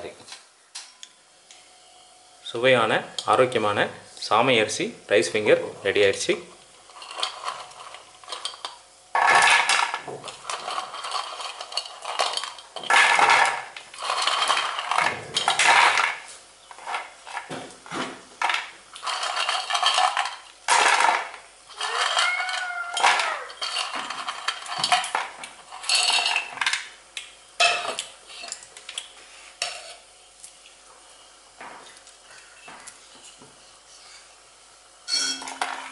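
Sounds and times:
fried snacks rattling in steel bowl: 6.9s - 16.2s, 18.4s - 26.8s.

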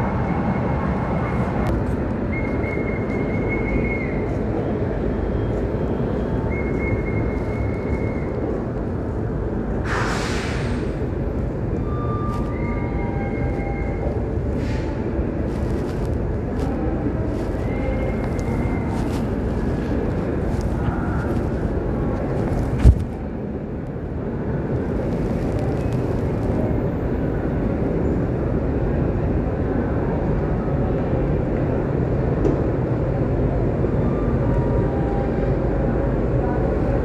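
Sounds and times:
train rolling past: 0.0s - 37.0s.

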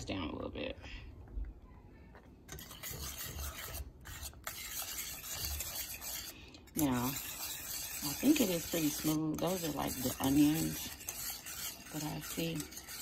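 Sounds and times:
whisk scraping in a pan: 2.5s - 13.0s.

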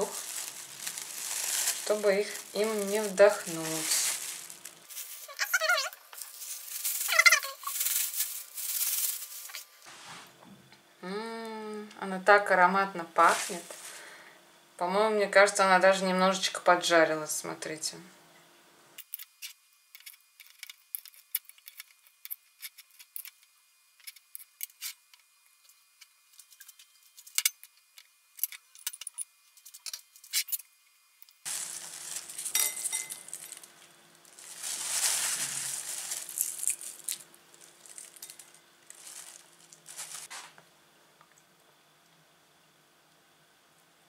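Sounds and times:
rustling and scraping of dishes: 32.2s - 33.6s.

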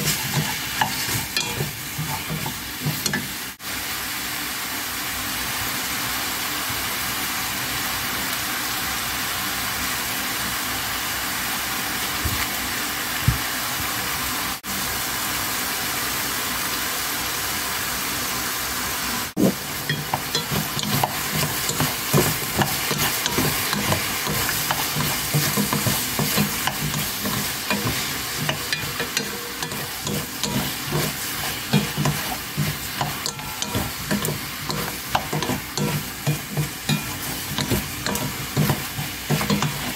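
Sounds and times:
wooden spatula scraping a pan: 0.0s - 3.3s, 19.4s - 39.9s
vegetables sizzling in a pan: 0.0s - 39.9s.

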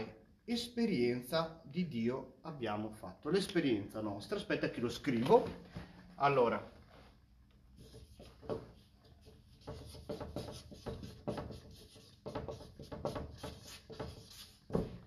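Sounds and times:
marker squeaking on paper: 7.8s - 14.8s.

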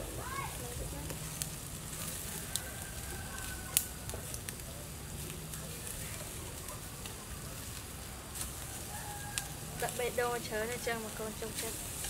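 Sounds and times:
meat sizzling on a grill: 0.0s - 12.0s.

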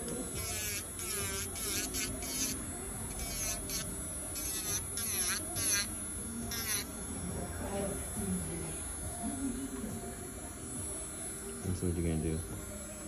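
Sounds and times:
electric nail drill whirring: 0.0s - 9.3s.

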